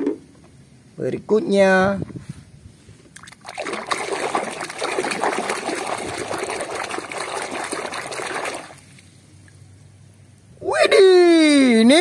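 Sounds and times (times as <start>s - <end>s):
water sloshing in a basin: 3.1s - 9.6s.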